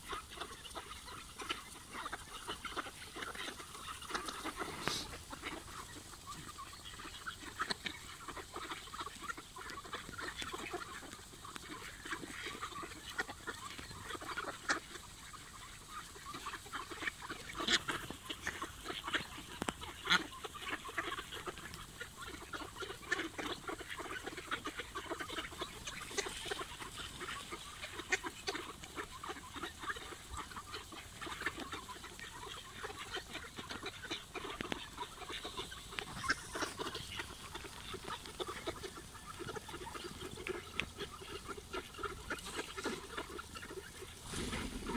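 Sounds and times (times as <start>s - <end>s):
ducks quacking: 0.0s - 44.9s.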